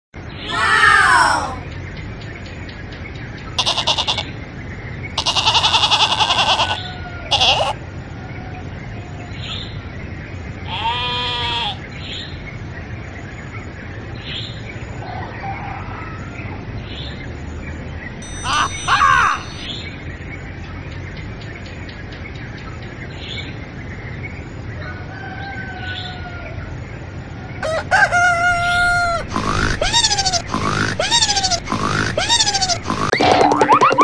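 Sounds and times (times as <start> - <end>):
steady background noise: 0.2 - 34.0
goats bleating: 3.6 - 4.2, 5.2 - 7.8, 29.2 - 33.1.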